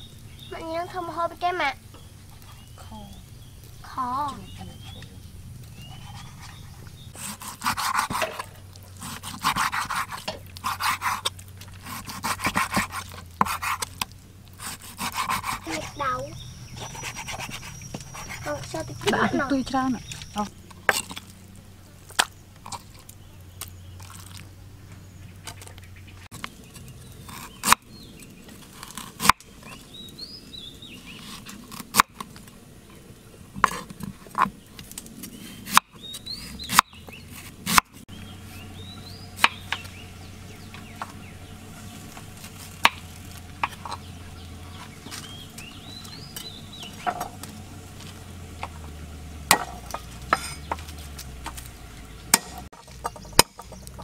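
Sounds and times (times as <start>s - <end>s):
bird chirps: 0.0s - 7.2s, 15.0s - 20.6s, 29.6s - 31.4s, 35.2s - 37.4s, 38.1s - 42.2s, 42.9s - 48.0s, 50.0s - 54.0s.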